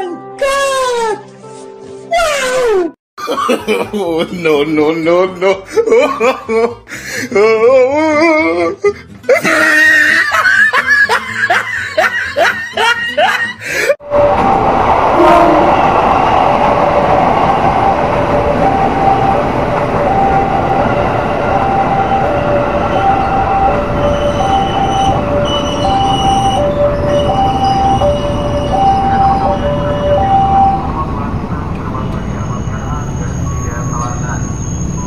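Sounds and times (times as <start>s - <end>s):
train wheels rumbling on rails: 14.0s - 35.0s
level-crossing alarm two-tone: 17.4s - 35.0s.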